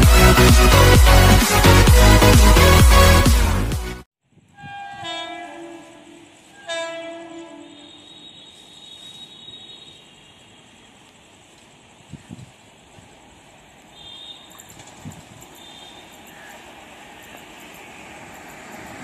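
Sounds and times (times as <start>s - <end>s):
distant train horn blasts: 4.5s - 10.6s, 15.6s - 16.6s.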